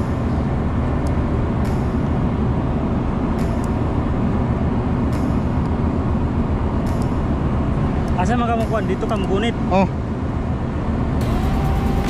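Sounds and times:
low rumbling on ship deck: 0.0 - 12.0.

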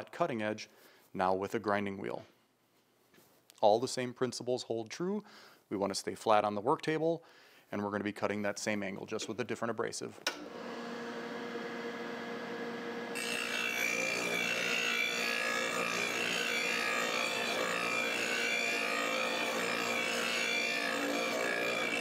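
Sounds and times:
grinding wheel motor humming: 13.1 - 22.0
blade grinding on wheel: 13.2 - 22.0.

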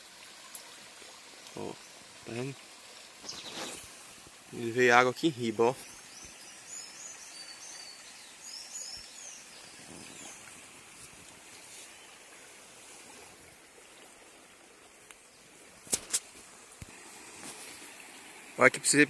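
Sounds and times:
small birds chirping: 3.2 - 3.9, 4.5 - 12.3.

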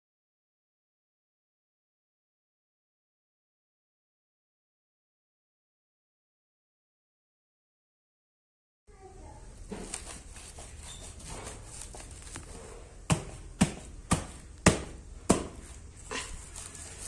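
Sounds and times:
faint handling and brushing: 9.2 - 14.6, 15.4 - 17.0.

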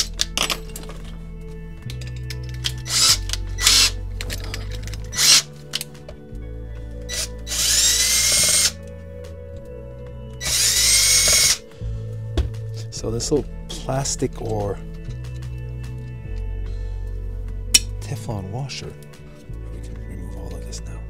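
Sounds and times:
cordless drill whining: 2.6 - 5.9, 7.1 - 8.8, 10.4 - 11.7.

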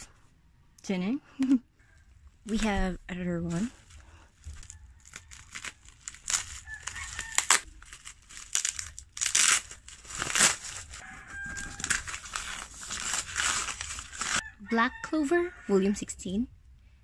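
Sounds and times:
bubble wrap crinkling: 2.1 - 14.4
paper mailer rustling: 2.5 - 14.4
packing tape tearing: 3.5 - 14.4.

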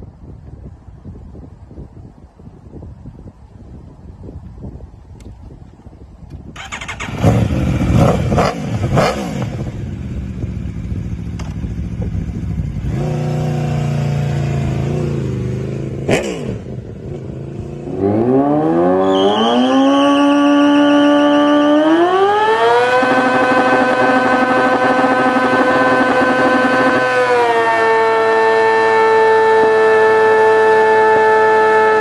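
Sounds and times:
motorcycle engine revving: 6.5 - 32.0
motorcycle engine high revs: 6.6 - 32.0.

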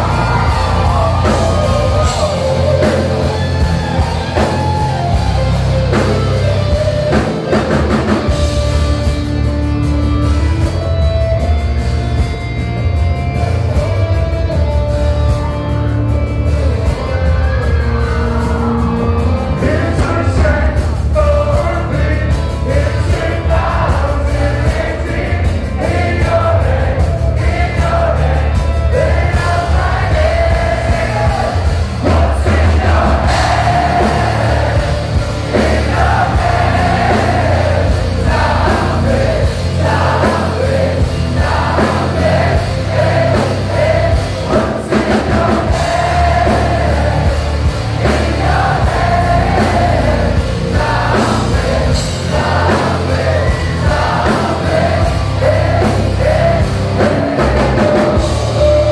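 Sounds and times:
person singing: 0.0 - 7.9, 27.4 - 58.9
heavy bass: 0.0 - 58.9
rock band playing live: 0.0 - 58.9.

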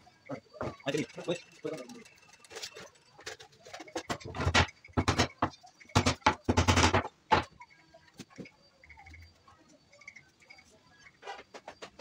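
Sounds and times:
knocks and clattering: 0.5 - 7.6.

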